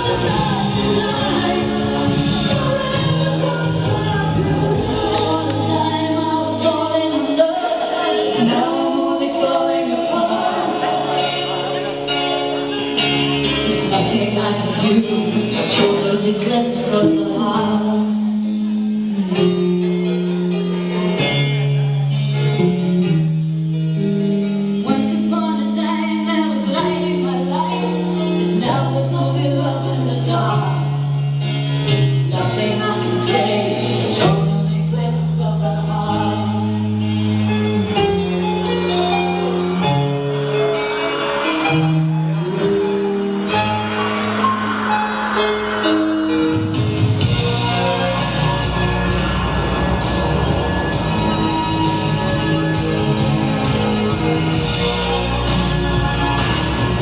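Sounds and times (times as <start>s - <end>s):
slow song with singing: 0.0s - 22.2s, 24.8s - 42.8s
long held bass notes: 28.0s - 57.0s.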